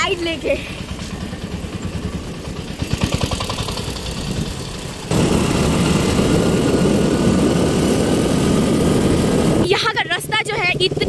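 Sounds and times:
scooter engine running: 0:00.0 - 0:11.0
wind on microphone: 0:05.1 - 0:09.9.

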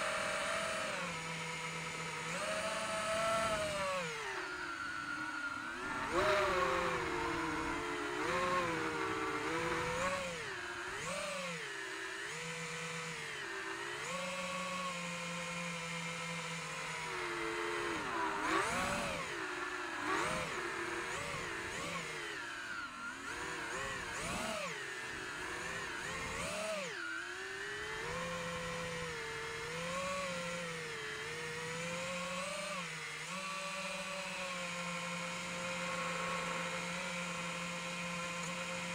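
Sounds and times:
drone motors whining: 0:00.0 - 0:38.9.

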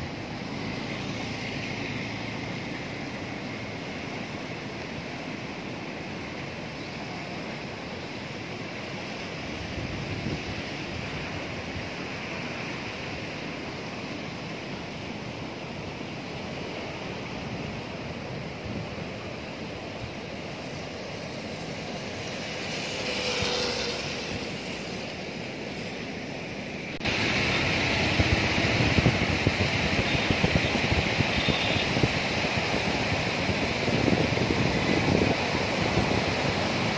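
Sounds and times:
river water rushing: 0:00.0 - 0:36.9
wind buffeting microphone: 0:27.0 - 0:36.9.

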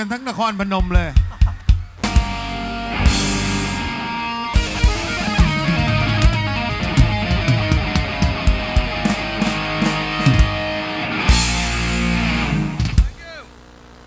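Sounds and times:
drum kit beat: 0:00.6 - 0:13.4
electric guitar lead: 0:02.0 - 0:13.2.

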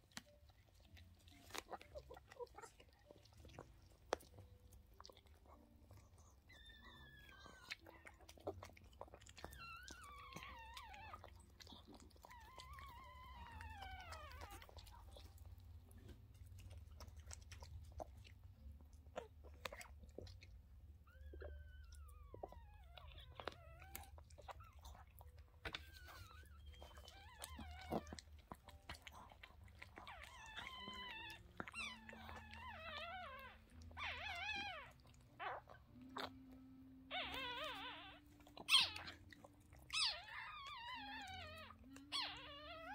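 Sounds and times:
dog licking and chewing: 0:00.0 - 0:42.9
puppy squealing: 0:05.5 - 0:15.4, 0:21.0 - 0:42.9.

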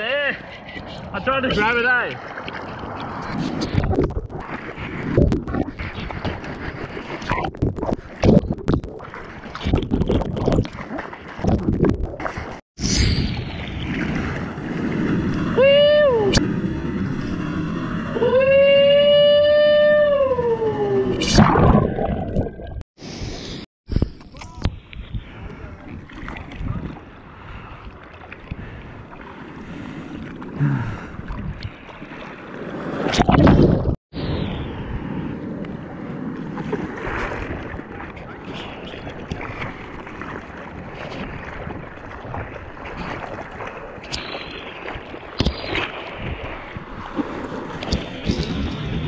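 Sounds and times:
water splashing and sloshing: 0:00.4 - 0:15.7, 0:21.0 - 0:22.8, 0:23.9 - 0:34.0, 0:35.6 - 0:49.0
rush of water: 0:35.7 - 0:49.0
wind buffeting microphone: 0:44.8 - 0:49.0.

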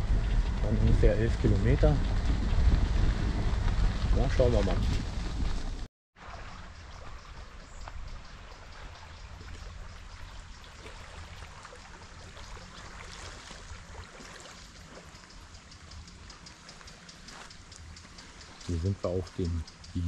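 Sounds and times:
wind rumble on microphone: 0:00.0 - 0:05.9
small water splashes: 0:00.6 - 0:18.9
small waves lapping on stones: 0:06.2 - 0:18.6.

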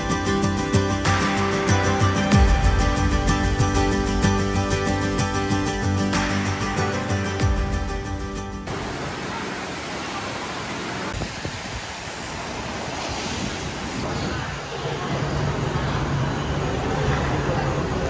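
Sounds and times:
background music: 0:00.0 - 0:08.7
steady rushing noise: 0:00.0 - 0:18.0.

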